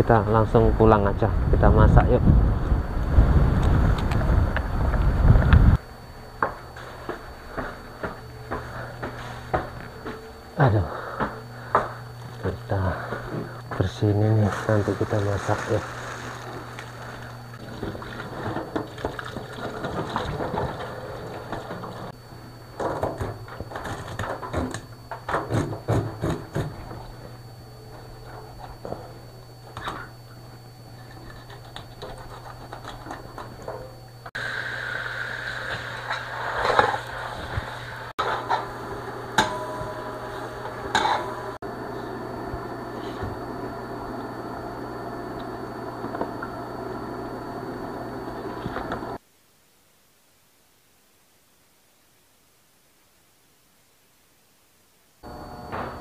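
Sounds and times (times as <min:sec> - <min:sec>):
steady low hum: 0:00.0 - 0:56.0
wok frying sizzle: 0:14.6 - 0:19.0, 0:34.4 - 0:43.0
spatula scraping pan: 0:39.4 - 0:41.5.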